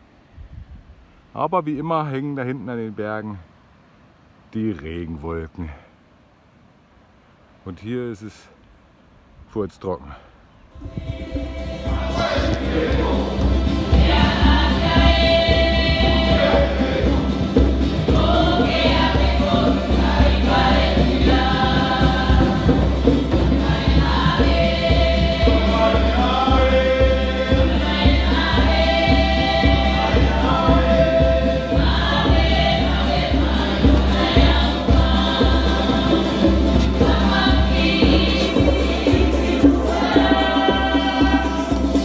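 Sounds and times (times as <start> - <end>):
choir singing: 10.7 - 42.0.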